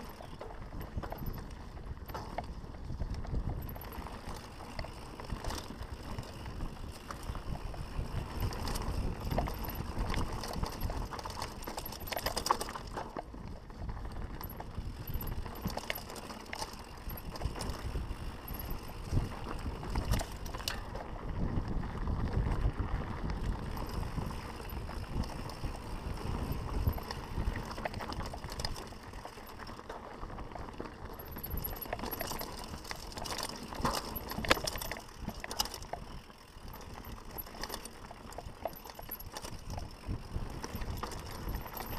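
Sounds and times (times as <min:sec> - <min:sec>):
bike chain clicks and rattles: 0:00.0 - 0:41.9
bike tyres rolling over stones: 0:00.0 - 0:41.9.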